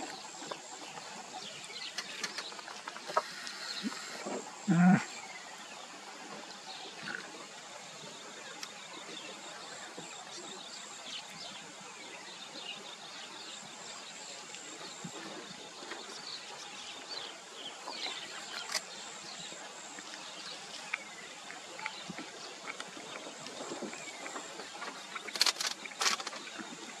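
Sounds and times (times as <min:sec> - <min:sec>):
high insect drone: 0:01.8 - 0:05.4.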